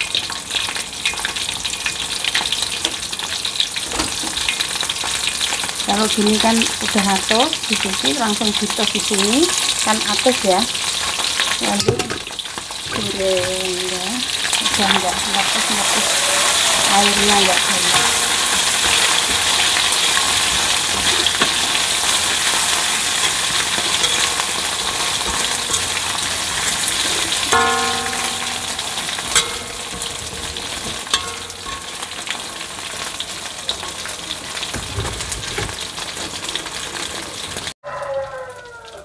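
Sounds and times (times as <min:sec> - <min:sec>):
fish sizzling in hot oil: 0:00.0 - 0:37.8
metal spoon clanking on wok: 0:11.4 - 0:13.5, 0:14.5 - 0:32.5.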